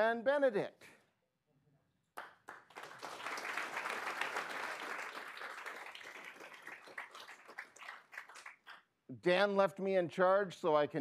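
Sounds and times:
audience applauding: 2.2s - 8.8s.

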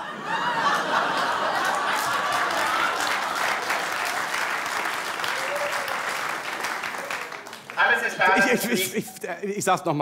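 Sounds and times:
audience laughing: 0.0s - 4.3s, 8.2s - 9.4s
crowd clapping: 0.4s - 8.8s.

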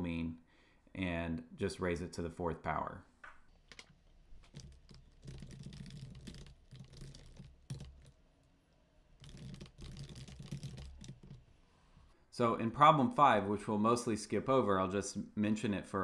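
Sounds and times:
typing on computer keyboard: 3.7s - 8.2s, 9.2s - 11.4s.

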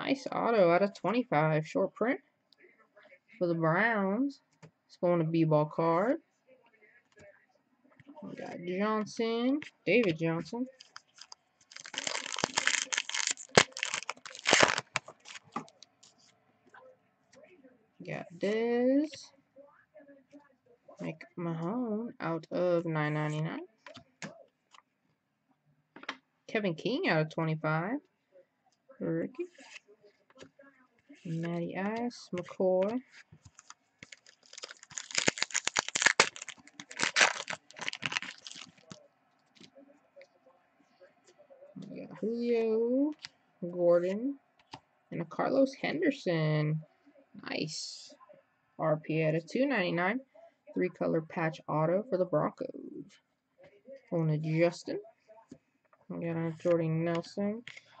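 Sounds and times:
trading cards rustling and clicking: 10.0s - 16.3s, 31.2s - 39.7s
foil wrapper tearing and crinkling: 10.7s - 15.8s, 33.5s - 39.0s.

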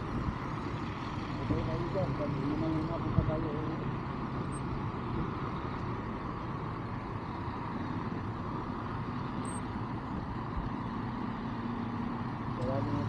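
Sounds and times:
low vehicle rumble: 0.0s - 13.0s.

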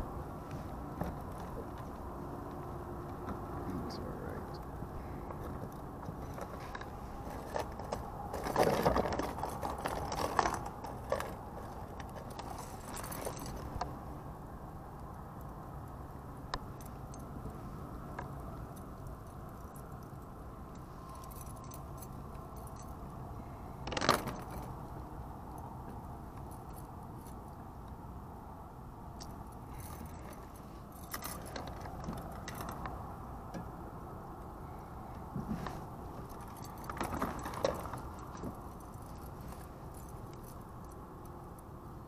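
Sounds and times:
metal chain clinking: 6.2s - 13.9s, 18.3s - 24.9s, 29.2s - 33.0s, 35.6s - 41.6s
metal clatter: 35.6s - 40.4s.

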